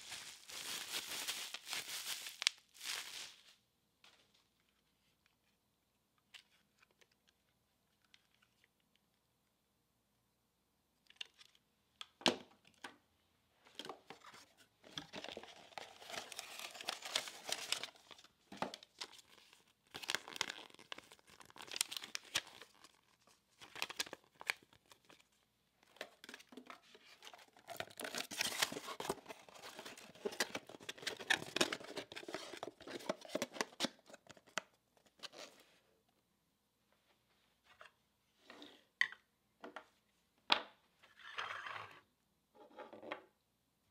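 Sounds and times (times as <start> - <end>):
paper rustling and crinkling: 0.0 - 3.5, 14.2 - 25.2, 25.9 - 34.6.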